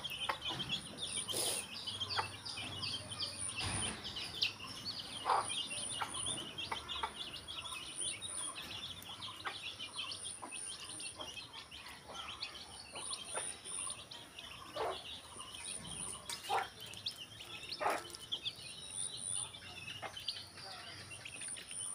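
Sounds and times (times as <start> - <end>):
chicks peeping: 0.0 - 21.9
short louder chick calls: 1.3 - 1.7.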